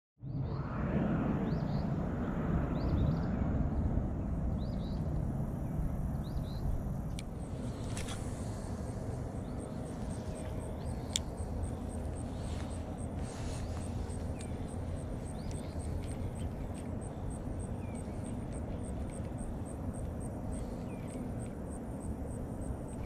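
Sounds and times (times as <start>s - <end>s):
low rumble: 0.2s - 23.0s
bird chirping: 9.4s - 19.5s.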